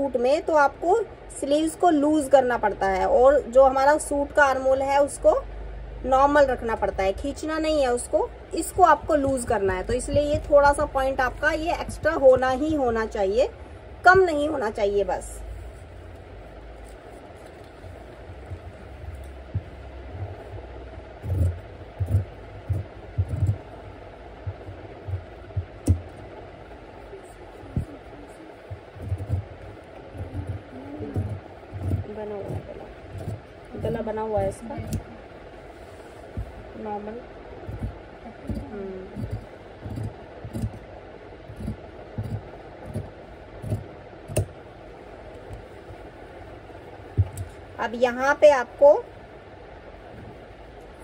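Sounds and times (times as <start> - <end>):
steady background hiss: 0.0 - 51.0
cloth rustling: 15.4 - 34.8, 35.4 - 36.8
scissors snipping fabric: 37.7 - 40.9, 41.5 - 44.5.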